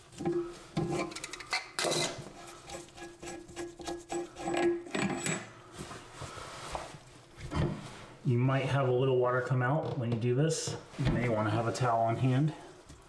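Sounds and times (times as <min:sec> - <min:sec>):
rubbing and scraping: 0:00.1 - 0:08.8.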